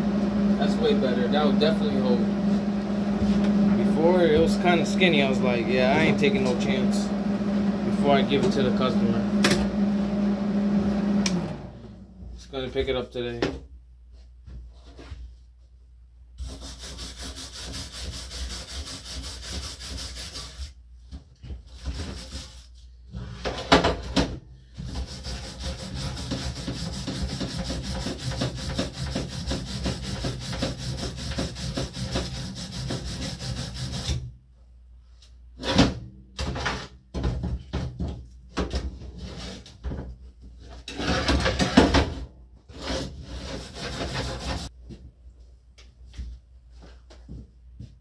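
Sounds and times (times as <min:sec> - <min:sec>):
wire brush scrubbing metal: 0:03.8 - 0:06.8, 0:16.4 - 0:20.7, 0:24.8 - 0:34.1, 0:43.3 - 0:44.7.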